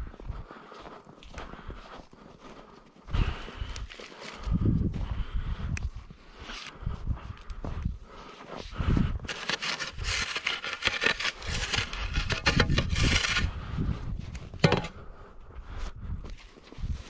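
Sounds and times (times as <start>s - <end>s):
footsteps crunching snow: 0.0s - 5.4s, 6.0s - 15.0s
spade scraping snow: 9.2s - 13.6s, 14.5s - 15.0s.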